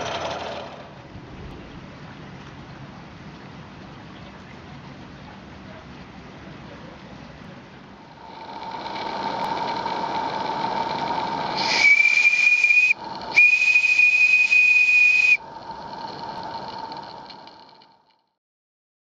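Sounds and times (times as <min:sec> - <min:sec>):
steam hissing: 0:08.3 - 0:15.4
steam whistle blasts: 0:11.6 - 0:15.4.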